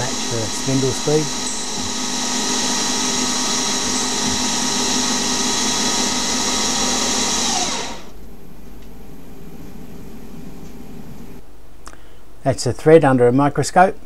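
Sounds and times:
lathe spindle whining: 0:00.0 - 0:08.2.

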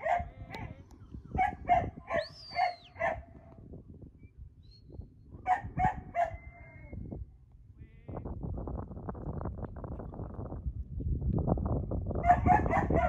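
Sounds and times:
dog barking: 0:00.0 - 0:00.7, 0:01.3 - 0:03.3, 0:05.5 - 0:06.6, 0:12.2 - 0:13.0.

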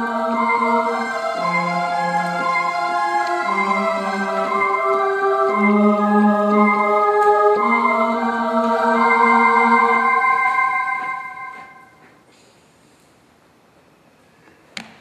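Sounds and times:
slow background music chords: 0:00.0 - 0:12.0.

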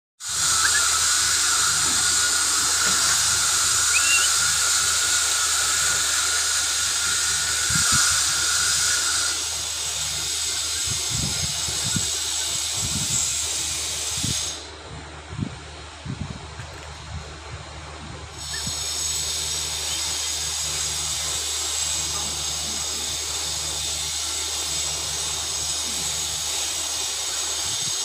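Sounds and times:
high-pitched hiss: 0:00.2 - 0:14.7, 0:18.4 - 0:28.0
rising chirp: 0:00.4 - 0:01.8, 0:03.8 - 0:04.5.

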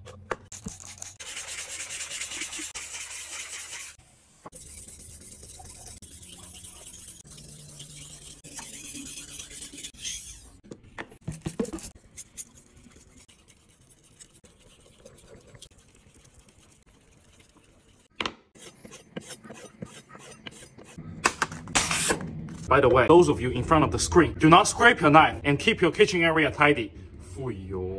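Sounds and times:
knife scraping on whetstone: 0:04.6 - 0:10.6, 0:16.8 - 0:21.0.

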